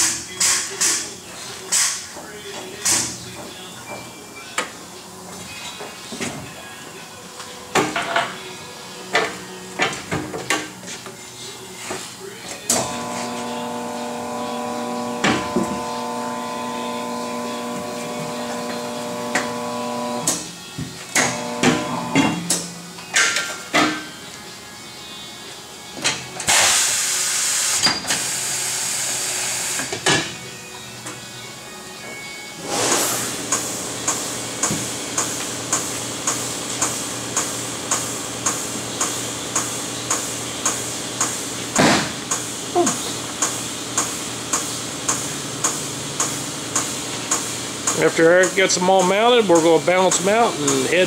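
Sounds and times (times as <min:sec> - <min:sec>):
compressed air hissing: 0:26.5 - 0:29.9, 0:32.6 - 0:34.3.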